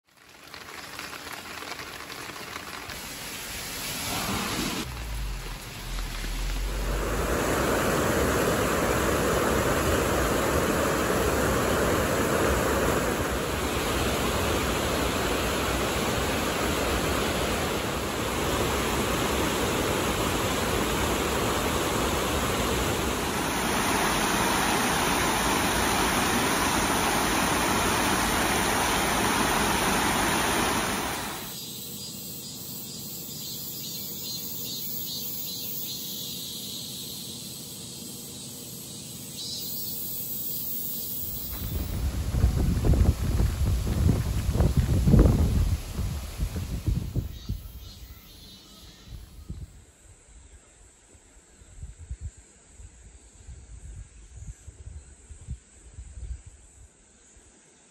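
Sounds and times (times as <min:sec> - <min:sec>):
water rushing over weir: 0:00.2 - 0:31.6
high insect chirring: 0:19.4 - 0:42.9.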